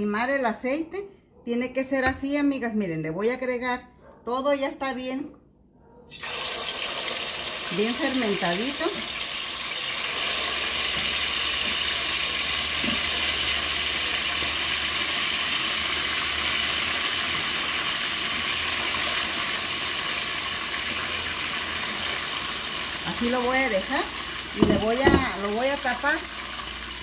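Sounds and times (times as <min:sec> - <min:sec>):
chicken frying in hot oil: 0:06.1 - 0:27.0.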